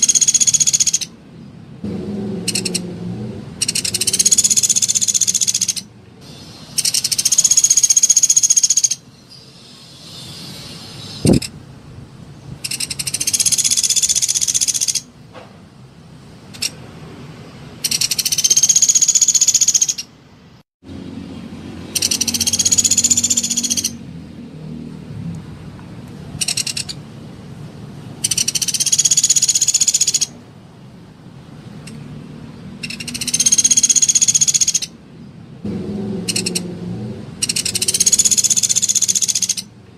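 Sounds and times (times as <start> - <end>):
woodpecker rattling trills: 0.0 - 1.2, 2.4 - 2.8, 3.6 - 9.0, 12.6 - 15.1, 17.8 - 20.1, 21.9 - 24.0, 26.4 - 27.0, 28.2 - 30.4, 32.8 - 35.0, 36.2 - 36.7, 37.4 - 39.8.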